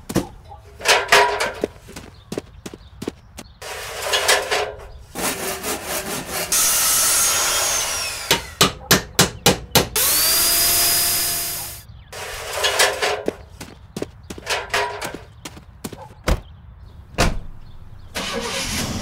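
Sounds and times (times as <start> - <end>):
clattering and knocking: 0.2 - 2.0, 14.3 - 16.5
power tool whining: 6.5 - 8.6, 9.9 - 13.0.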